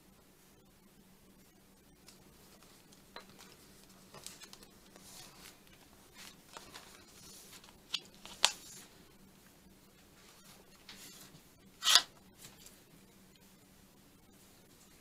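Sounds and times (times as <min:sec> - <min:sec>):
paper rustling: 0:02.6 - 0:09.0.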